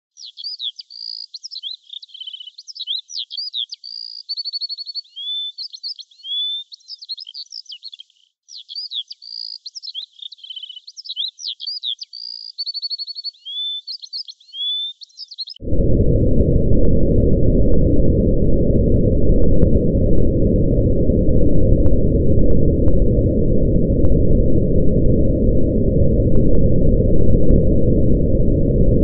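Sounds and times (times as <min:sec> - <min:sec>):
songbird singing: 0:00.1 - 0:15.6.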